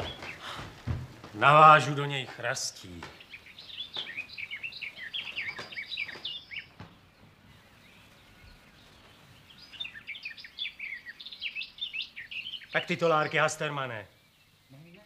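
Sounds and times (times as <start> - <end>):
small birds chirping: 0.0 - 15.0
light knocks: 5.5 - 7.4.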